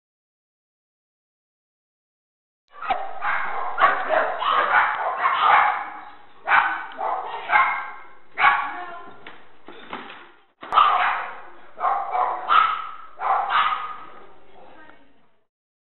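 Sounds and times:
dogs barking in kennel: 2.7s - 8.9s, 10.6s - 14.4s.

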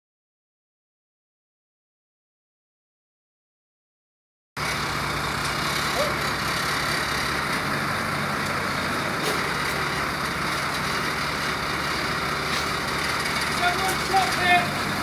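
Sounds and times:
heavy vehicle engine running: 4.6s - 15.0s.

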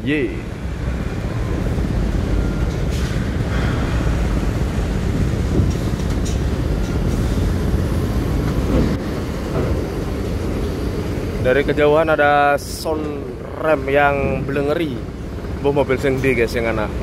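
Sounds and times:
bus engine low rumble: 0.0s - 17.0s.

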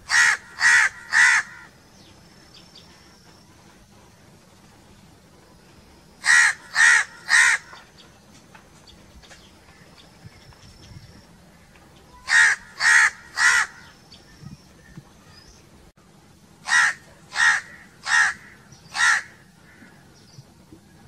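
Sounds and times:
crow cawing: 0.1s - 1.7s, 6.2s - 7.8s, 12.2s - 13.9s, 16.6s - 20.0s.

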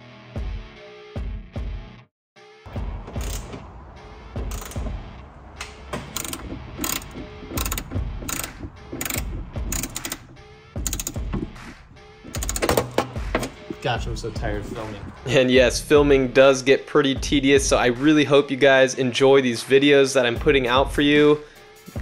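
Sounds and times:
ratchet wrench clicking: 3.1s - 3.5s, 4.4s - 5.0s, 5.6s - 13.0s.

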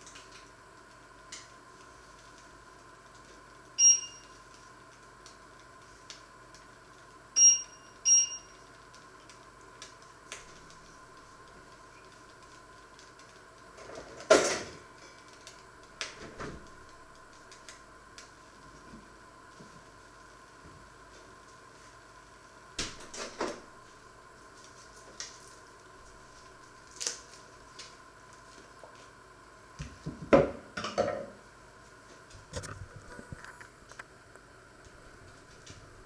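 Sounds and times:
faint steady hum: 0.0s - 36.0s
short electronic beeps: 3.8s - 4.3s, 7.4s - 8.5s.

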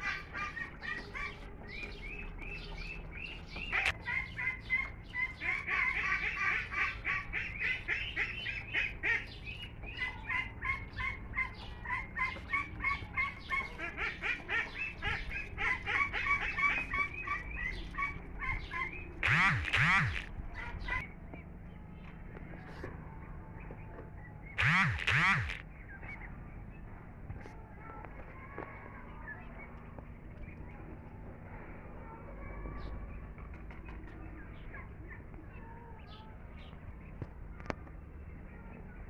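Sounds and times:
ducklings peeping: 0.0s - 28.0s.

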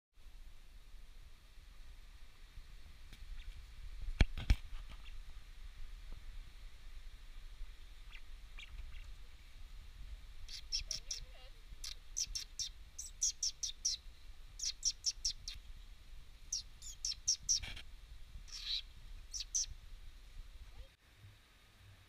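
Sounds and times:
bird chirping: 8.0s - 9.3s, 10.4s - 15.7s, 16.4s - 17.8s, 18.5s - 19.8s.

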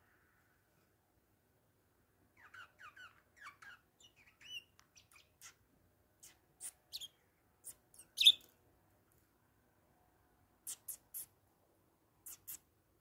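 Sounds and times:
parakeet chirping: 2.4s - 5.6s, 6.2s - 8.5s.

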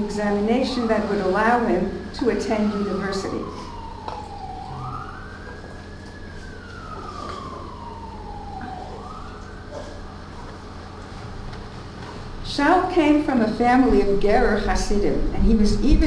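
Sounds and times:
siren wailing: 0.0s - 11.0s
low steady hum: 0.0s - 16.0s.

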